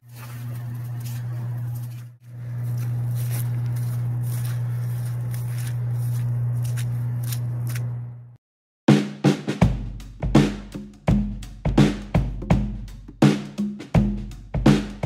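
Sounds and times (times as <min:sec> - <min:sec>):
footsteps through grass: 0:00.0 - 0:08.0
power plant hum: 0:00.0 - 0:08.4.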